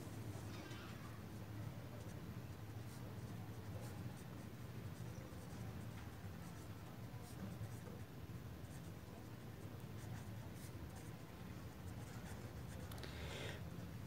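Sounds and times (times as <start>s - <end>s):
pen scratching on paper: 12.0s - 12.8s.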